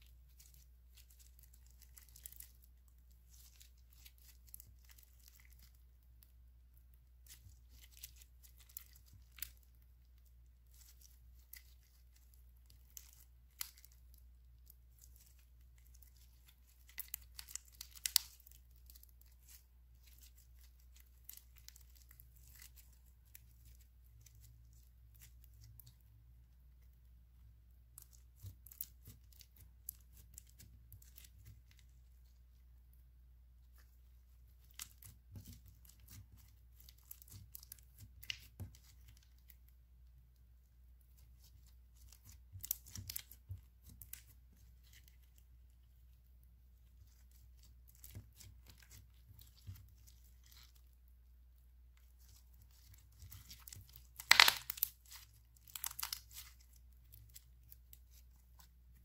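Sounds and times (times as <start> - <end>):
sticky slime clicks and crackles: 15.0 - 23.8, 52.3 - 58.0.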